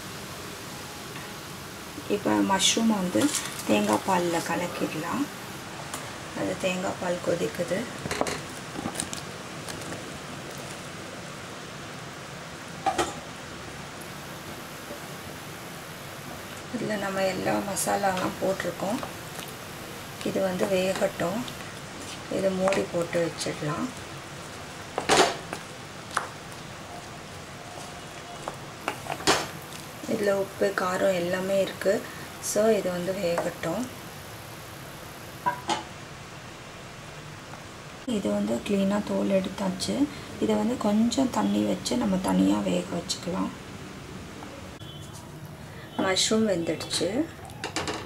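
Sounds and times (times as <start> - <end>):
liquid boiling and bubbling: 7.6 - 30.8.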